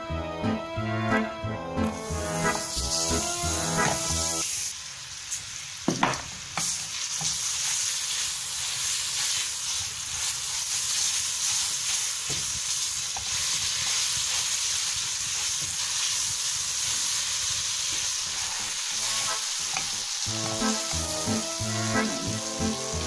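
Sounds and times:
music: 0:00.0 - 0:04.4, 0:18.9 - 0:23.0
butter sizzling in a pan: 0:01.9 - 0:23.0.

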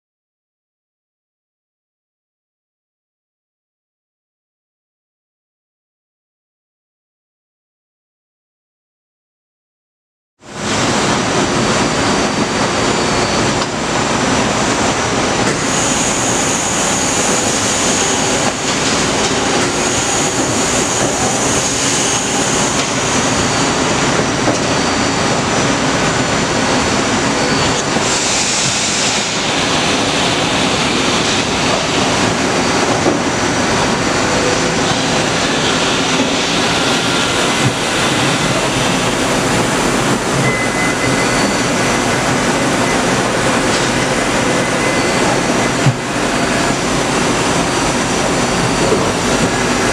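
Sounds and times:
high spindle whine: 0:10.6 - 0:49.9
milling machine running: 0:10.6 - 0:49.9.

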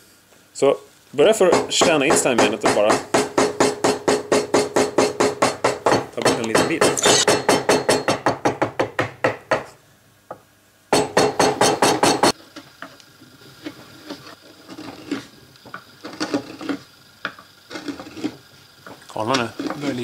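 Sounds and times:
chisel scraping wood: 0:13.7 - 0:15.3, 0:16.0 - 0:16.8, 0:17.7 - 0:18.4, 0:19.3 - 0:20.0.

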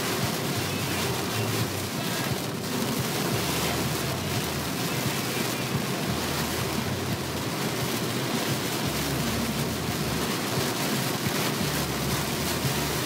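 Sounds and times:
engine and road noise hum: 0:00.0 - 0:13.0
rain and tyre spray on car: 0:00.0 - 0:13.0.

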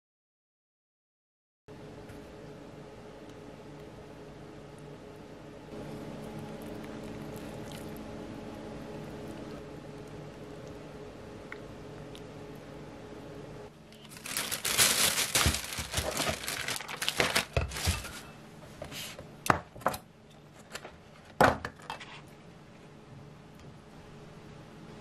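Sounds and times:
plastic packaging crinkling: 0:13.9 - 0:18.4.

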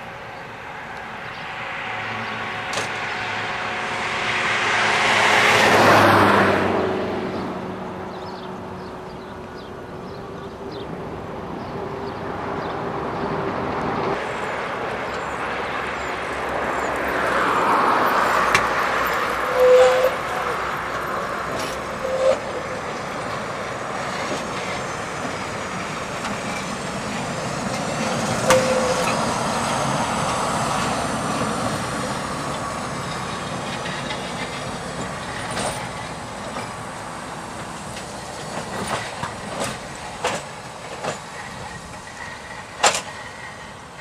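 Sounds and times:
tram rolling rumble: 0:00.0 - 0:44.0
wheels clacking over rail joints: 0:02.4 - 0:03.6, 0:08.1 - 0:44.0.

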